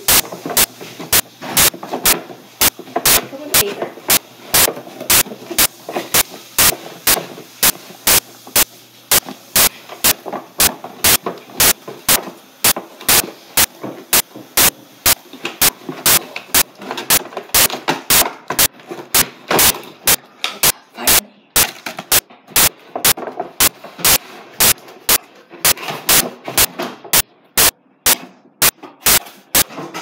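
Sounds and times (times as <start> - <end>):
rustling crackling noise: 0.0 - 20.8.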